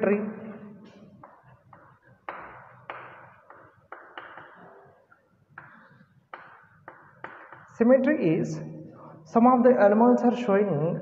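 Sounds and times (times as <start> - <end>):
chalk tapping and scratching: 1.2 - 4.8, 5.6 - 7.8.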